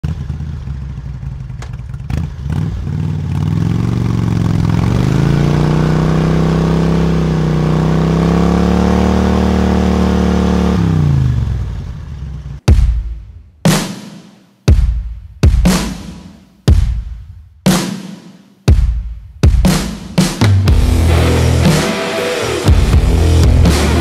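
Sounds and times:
motorcycle engine revving: 0:00.0 - 0:12.6, 0:20.6 - 0:24.0.

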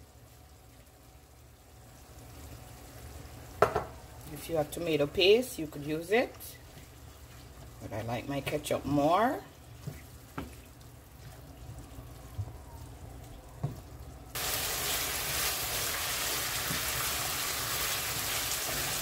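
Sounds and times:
sauce sizzling in a pan: 0:14.3 - 0:19.0.

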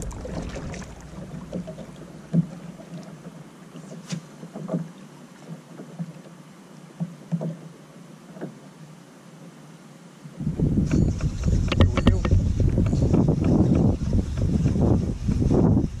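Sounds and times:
wind buffeting microphone: 0:00.0 - 0:01.7, 0:10.4 - 0:16.0
water slapping hull: 0:00.0 - 0:06.2.

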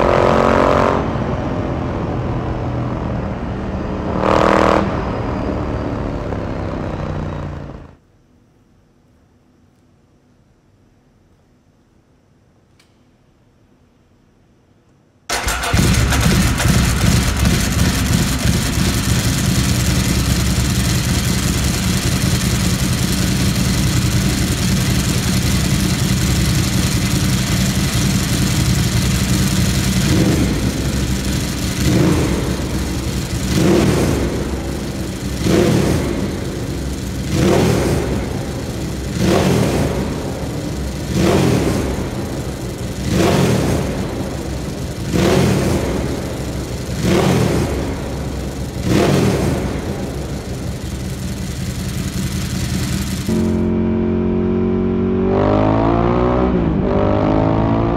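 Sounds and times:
motorcycle engine revving: 0:00.0 - 0:08.0, 0:15.3 - 0:57.9
motorcycle engine idling: 0:05.5 - 0:08.0, 0:15.3 - 0:53.8.

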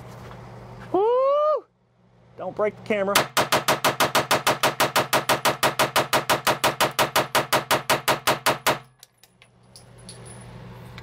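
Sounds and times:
rapid pistol gunshots: 0:03.2 - 0:08.9.

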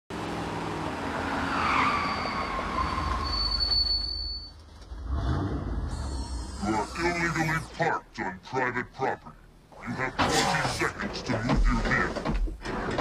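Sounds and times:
car engine rumble: 0:00.1 - 0:03.2
tyres squealing on pavement: 0:01.2 - 0:04.6.

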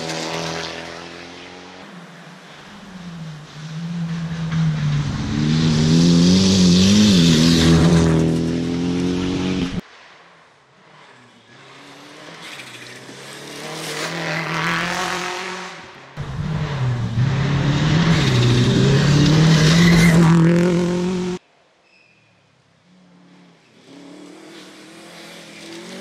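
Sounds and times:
rally car engine revving: 0:03.6 - 0:09.8, 0:11.0 - 0:21.4.

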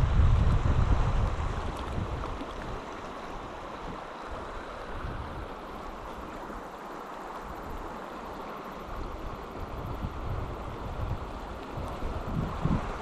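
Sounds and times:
wind rumble on microphone: 0:00.0 - 0:06.1, 0:08.9 - 0:13.0
river water rushing over rocks: 0:00.0 - 0:13.0.

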